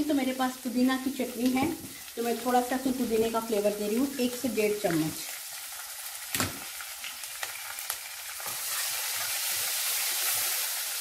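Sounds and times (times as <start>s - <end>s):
hot oil sizzling: 0.0s - 11.0s.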